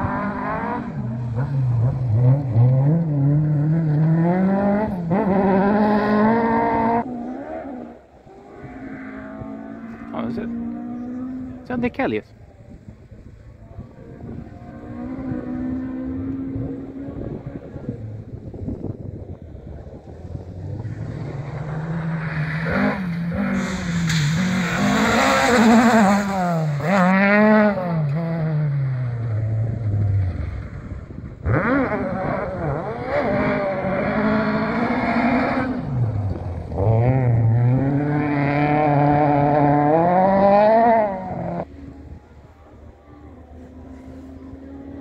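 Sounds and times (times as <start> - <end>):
rally car engine at full throttle: 0.0 - 45.0.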